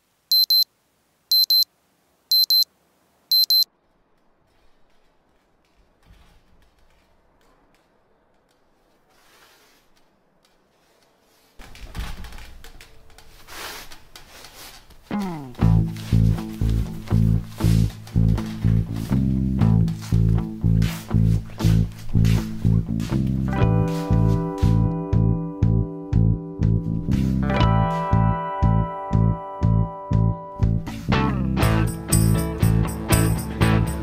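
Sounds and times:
alarm clock beeping: 0.3 - 0.6, 1.3 - 1.6, 2.3 - 2.6, 3.3 - 3.7
rustling and clattering: 3.8 - 19.2.

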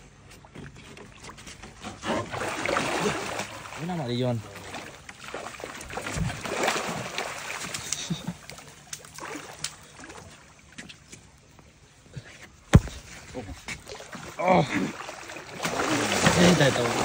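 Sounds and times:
water splashing in boat: 0.0 - 11.1, 12.8 - 17.0
loud thump: 12.7 - 13.2.

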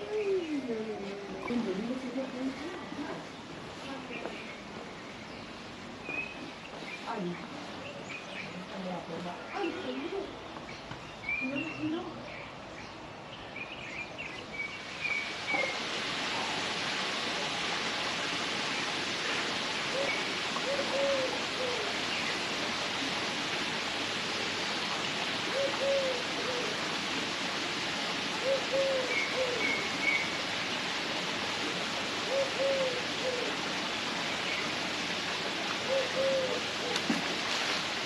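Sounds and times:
running water rushing: 0.0 - 12.0, 14.2 - 38.0
bird giving low calls: 19.9 - 21.9, 28.4 - 30.2, 32.3 - 33.6, 35.8 - 37.0.

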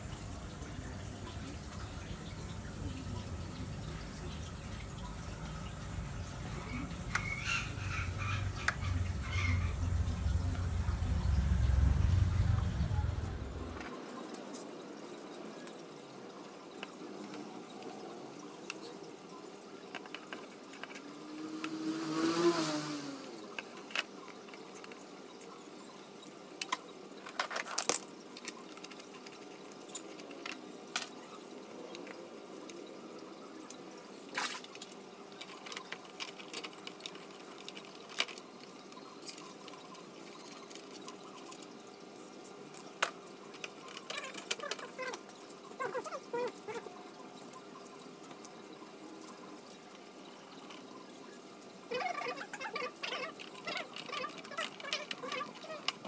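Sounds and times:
steady low hum: 0.0 - 13.9.

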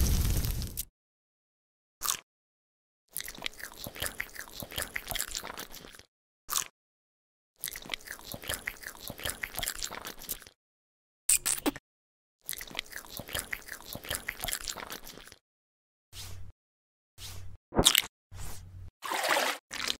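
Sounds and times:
crunchy chewing: 3.1 - 6.7, 7.6 - 10.6, 12.4 - 15.4.

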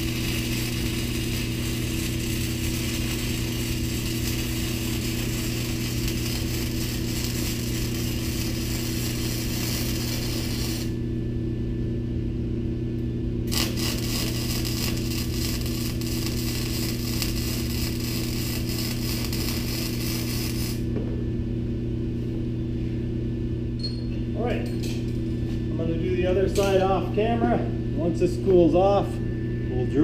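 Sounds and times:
welding arc crackling: 0.0 - 11.1, 13.4 - 20.9
low hum: 0.0 - 30.0.

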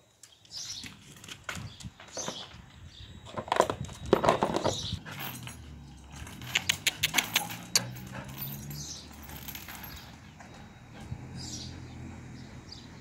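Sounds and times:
metal chain clinking: 3.9 - 10.8.

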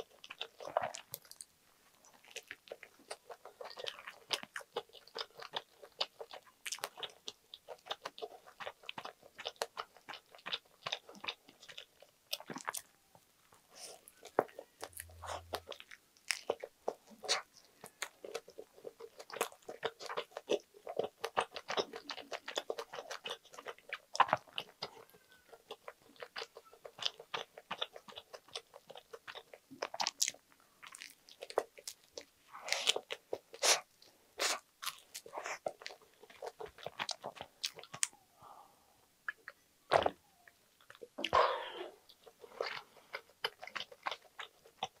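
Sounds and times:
wet chewing: 0.0 - 38.2, 42.0 - 45.0
crunching toast: 13.8 - 38.2.

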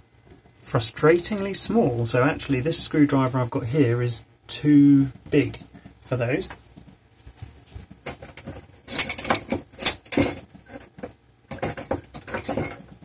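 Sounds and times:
metal tools clinking: 8.1 - 10.9, 11.5 - 13.0.

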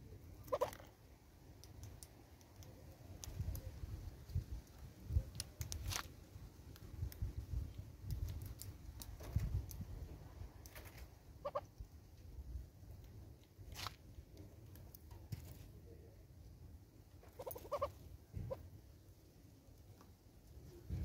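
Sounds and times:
hornbill clucks: 0.4 - 0.8, 17.2 - 18.6.

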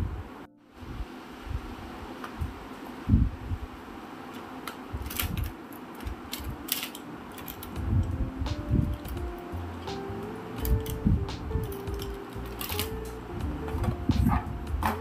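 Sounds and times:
plastic clicks and clatter: 4.4 - 7.8, 11.6 - 13.1
soft background music: 5.0 - 15.0.

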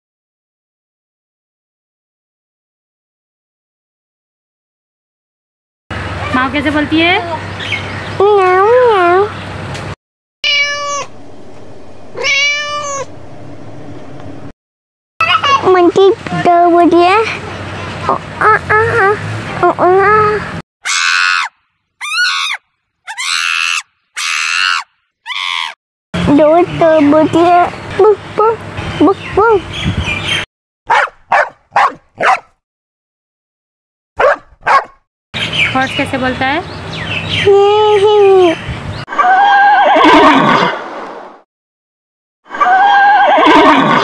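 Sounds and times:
monkey screeching: 10.4 - 11.2, 12.1 - 13.2, 20.8 - 25.8, 39.1 - 40.6, 42.5 - 44.0
horse whinnying: 10.4 - 14.4, 39.1 - 40.8, 42.5 - 44.0.

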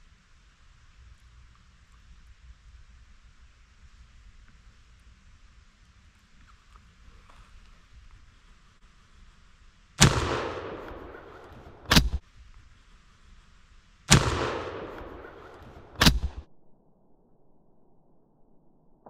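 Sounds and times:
shotgun blasts echoing: 10.0 - 12.2, 14.1 - 16.5
sharp crack: 10.0 - 12.3, 14.1 - 16.5.

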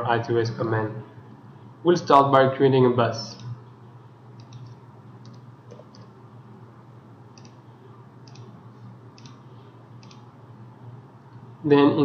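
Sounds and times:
low steady hum: 0.0 - 12.0
computer mouse clicks: 4.4 - 6.1, 7.3 - 7.6, 8.2 - 8.5, 9.1 - 9.4, 10.0 - 10.3.

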